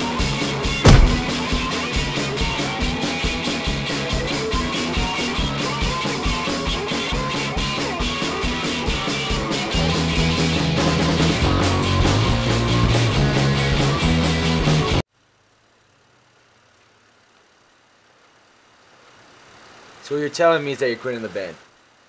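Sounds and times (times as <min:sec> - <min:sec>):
sharp loud hit: 0:00.8 - 0:01.5.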